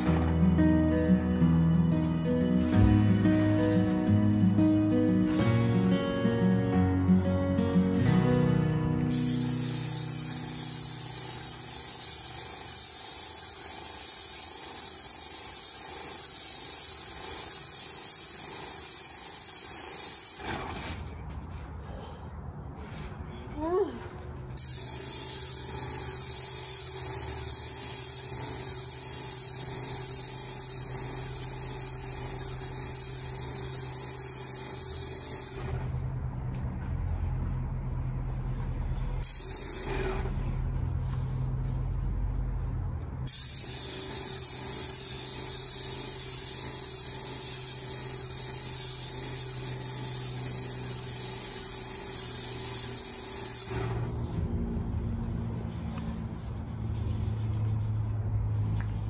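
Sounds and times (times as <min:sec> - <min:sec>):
paint sprayer hissing: 0:00.0 - 0:06.2, 0:09.0 - 0:21.1, 0:24.6 - 0:36.0, 0:39.2 - 0:40.4, 0:43.3 - 0:54.5.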